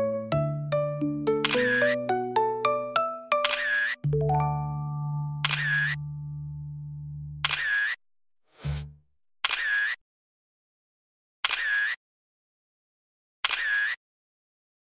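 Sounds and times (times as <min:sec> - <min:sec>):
camera shutter click: 0:01.4 - 0:01.9, 0:03.4 - 0:04.0, 0:05.4 - 0:06.0, 0:07.4 - 0:08.0, 0:13.4 - 0:14.0.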